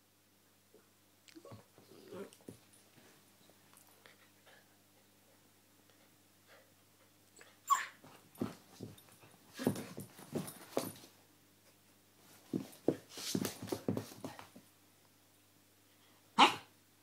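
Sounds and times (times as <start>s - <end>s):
puppy whining: 7.4s - 8.0s
puppy yelping: 7.7s - 8.0s, 16.4s - 16.6s.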